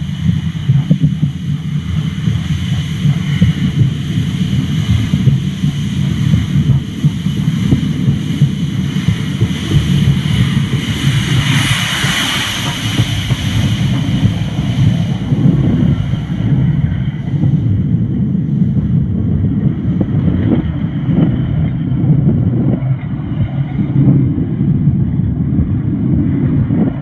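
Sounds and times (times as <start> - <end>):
steam hiss: 0.0 - 17.6
muffled train rumble: 0.0 - 27.0.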